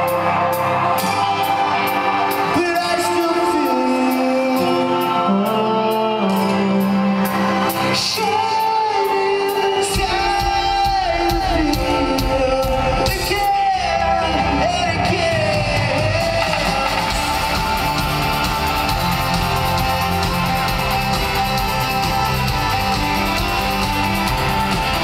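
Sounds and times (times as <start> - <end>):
person singing: 0.0 - 18.6
live rock band: 0.0 - 25.0
heavy bass and drums: 10.0 - 25.0.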